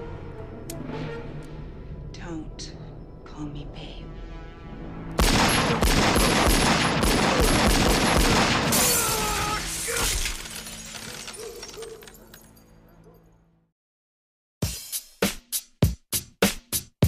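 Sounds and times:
rapid pistol shots: 5.2 - 8.7
glass shattering: 8.7 - 12.6.

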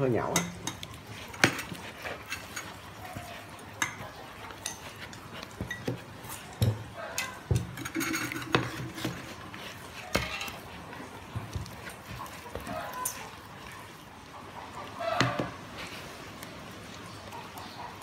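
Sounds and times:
utensil scraping bowl: 0.2 - 14.0.

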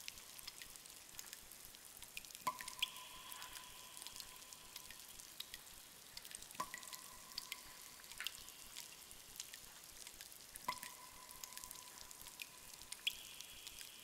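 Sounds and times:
faint ticks: 0.0 - 14.0
water drops plinking: 2.5 - 4.6.

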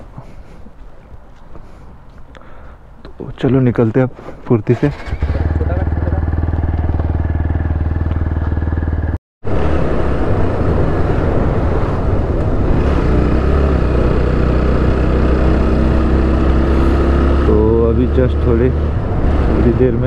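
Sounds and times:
wind and road noise: 0.0 - 20.0
motorcycle riding along: 4.9 - 20.0
motorcycle engine idling: 5.4 - 9.2.

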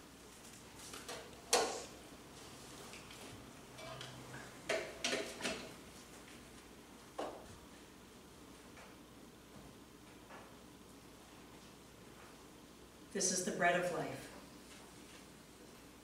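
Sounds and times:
trays and cups clinking: 3.7 - 5.8.

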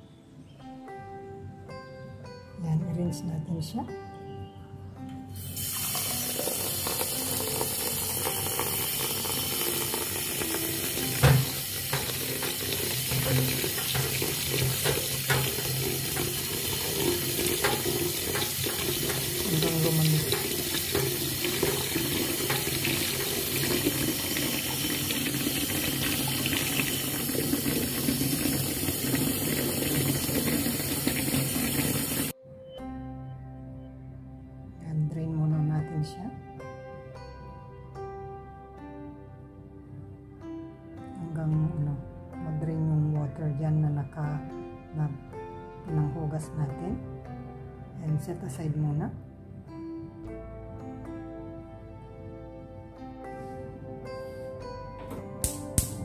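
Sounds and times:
tap water splashing in sink: 5.7 - 32.3
spatula knocking strainer: 11.0 - 27.0.

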